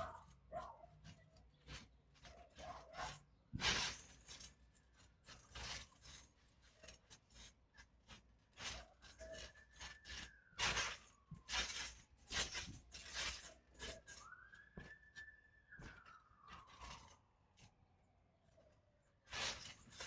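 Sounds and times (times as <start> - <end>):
trampoline mat bouncing and rustling: 0.0 - 17.8, 18.7 - 20.0
faint whistle-like tone sliding down: 13.8 - 17.3.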